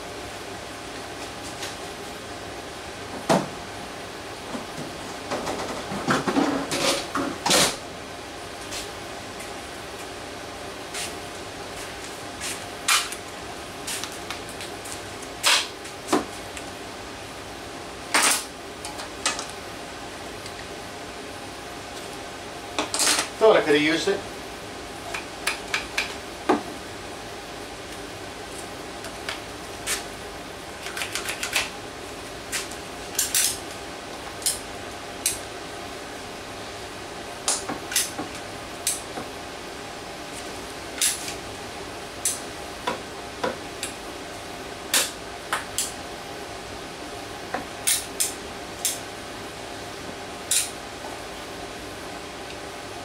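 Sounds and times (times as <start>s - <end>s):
steady hum: 0.0s - 53.0s.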